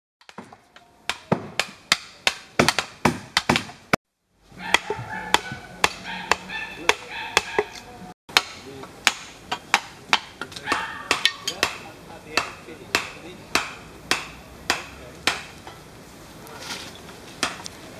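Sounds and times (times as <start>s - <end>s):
mallet knocking chisel into wood: 1.1s - 3.8s.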